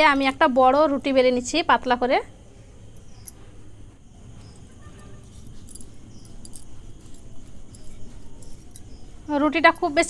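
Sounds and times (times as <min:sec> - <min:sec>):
glass bangles clinking: 0:02.9 - 0:03.5, 0:04.4 - 0:10.0
rolling pin rolling dough: 0:03.9 - 0:10.0.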